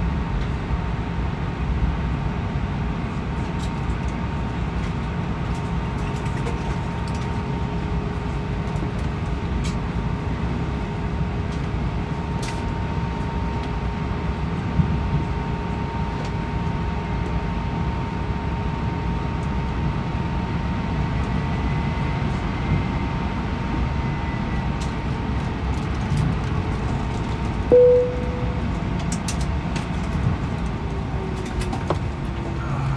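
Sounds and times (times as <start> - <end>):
airplane cabin rumble: 0.0 - 32.9
cabin chime: 27.7 - 28.6.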